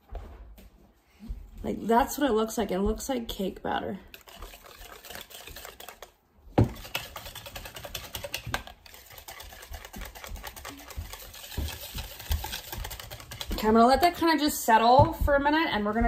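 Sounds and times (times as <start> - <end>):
whisk clicking against bowl: 4.1 - 6.1, 6.7 - 14.1.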